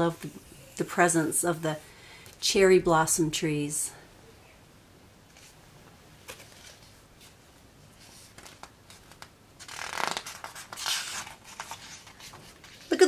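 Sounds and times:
page rustling as flipped: 0:06.2 - 0:07.4, 0:08.0 - 0:13.0.

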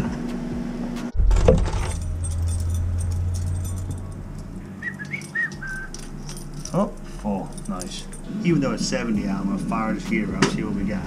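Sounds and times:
low rumble: 0:01.1 - 0:04.9
short high squeaks: 0:04.8 - 0:06.1.

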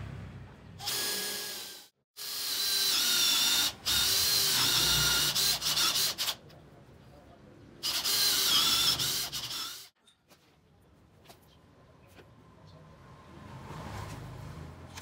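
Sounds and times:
cordless drill boring into wood: 0:00.8 - 0:06.4, 0:07.8 - 0:09.9.

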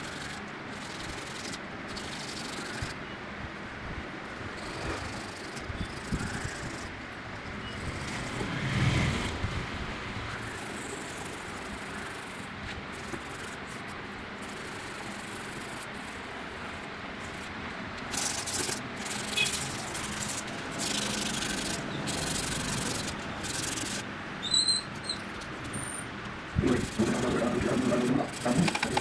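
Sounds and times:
hand sanding rasp: 0:18.1 - 0:24.0, 0:26.6 - 0:29.0.

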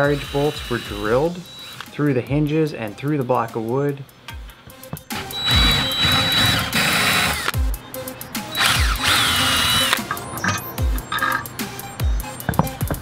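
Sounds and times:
power drill drilling metal: 0:00.0 - 0:01.9, 0:05.2 - 0:07.5, 0:08.5 - 0:11.4.

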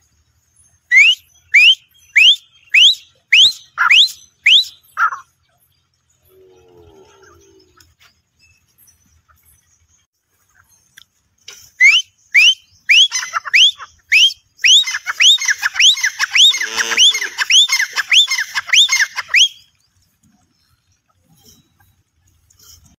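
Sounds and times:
francolin calling: 0:00.6 - 0:06.3, 0:10.6 - 0:19.8.

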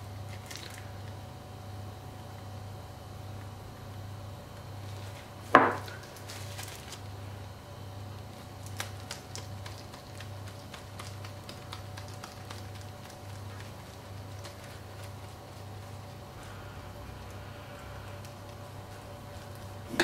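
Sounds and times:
low steady hum: 0:00.0 - 0:20.0
container knocking on countertop: 0:05.6 - 0:05.9.

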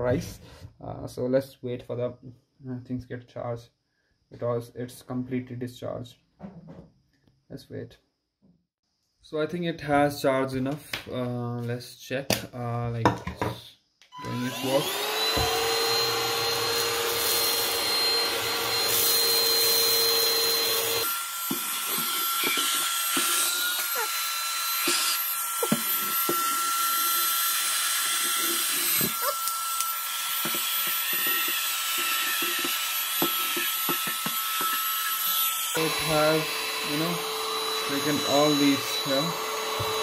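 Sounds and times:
handheld vacuum cleaner running: 0:14.2 - 0:40.0.

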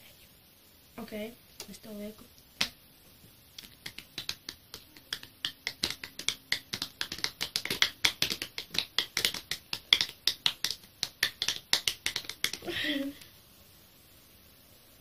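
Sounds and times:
rapid sharp clicks: 0:03.6 - 0:12.6.

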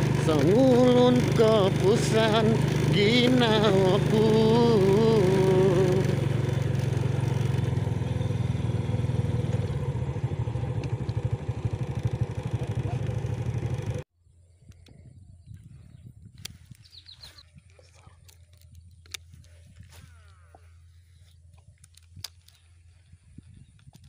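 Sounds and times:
small motorcycle engine idling: 0:00.0 - 0:14.1.

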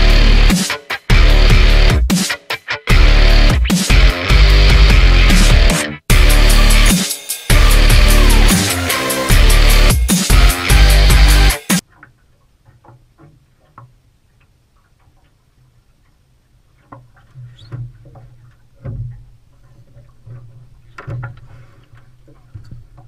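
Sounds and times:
intro music: 0:00.0 - 0:11.8
taps and knocks in metal boat: 0:16.8 - 0:23.0.

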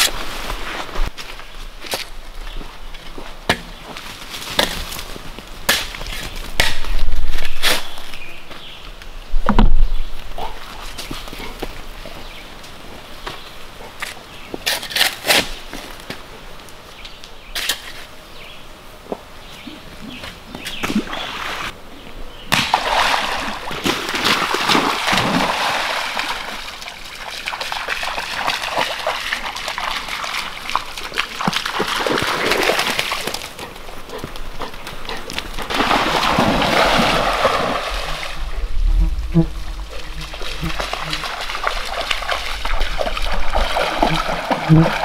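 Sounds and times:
dog splashing through water: 0:22.7 - 0:38.4, 0:39.9 - 0:45.0.

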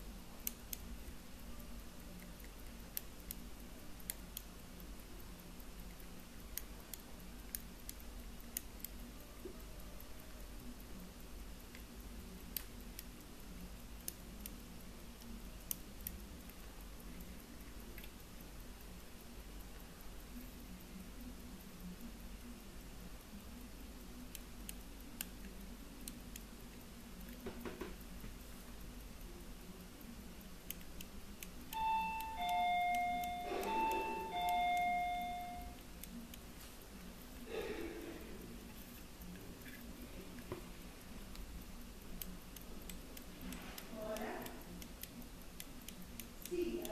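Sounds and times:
low steady hum: 0:00.0 - 0:46.9
pocket watch gongs chiming: 0:31.7 - 0:35.8.

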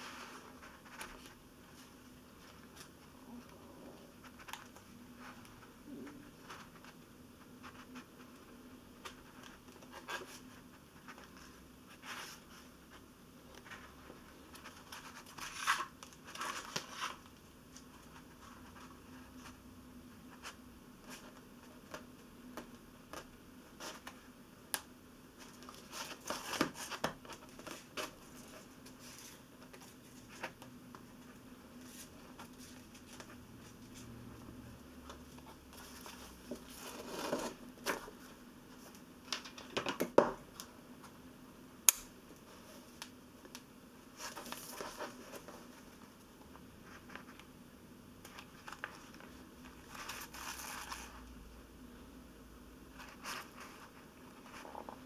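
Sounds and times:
paper pages rustling: 0:00.0 - 0:03.5, 0:13.6 - 0:19.6, 0:25.4 - 0:34.1, 0:44.2 - 0:46.2, 0:48.2 - 0:51.2.

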